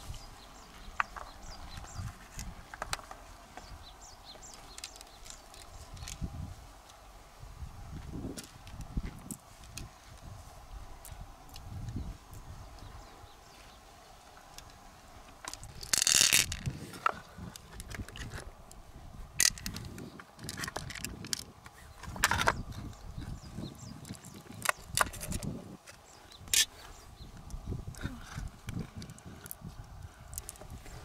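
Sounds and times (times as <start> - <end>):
shell clicking and scraping: 1.0 - 6.2, 14.4 - 18.8, 19.4 - 23.4, 24.0 - 27.6, 28.3 - 31.0.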